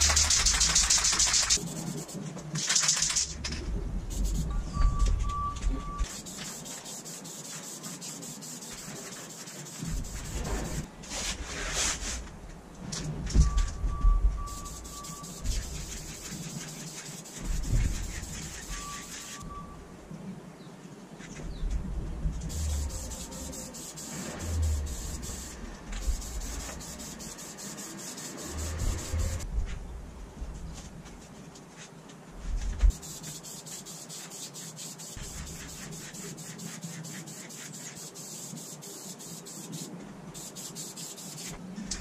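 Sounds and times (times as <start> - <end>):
hands rubbing on wooden frame: 6.1 - 12.2, 22.5 - 29.4, 32.9 - 41.6.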